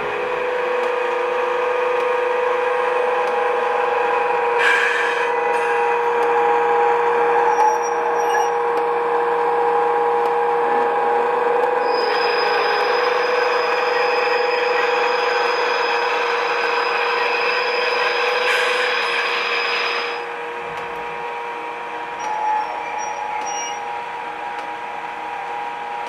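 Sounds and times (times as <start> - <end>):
electric locomotive whine: 0.0 - 26.0
hiss: 18.4 - 20.2.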